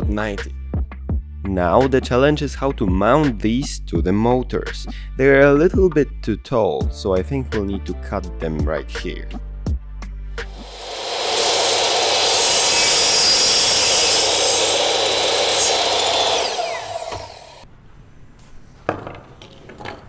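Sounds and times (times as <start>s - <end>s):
saw blade winding down: 10.4s - 17.6s
mitre saw cutting plastic: 10.5s - 17.6s.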